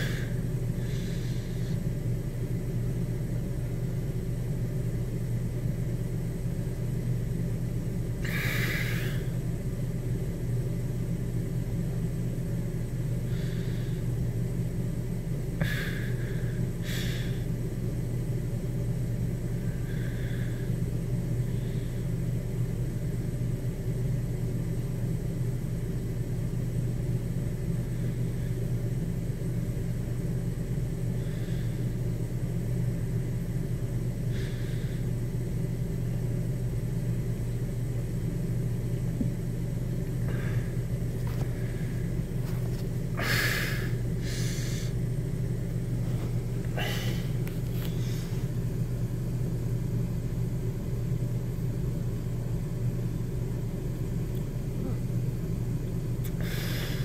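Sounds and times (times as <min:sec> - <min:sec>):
steady low drone: 0:27.5 - 0:57.0.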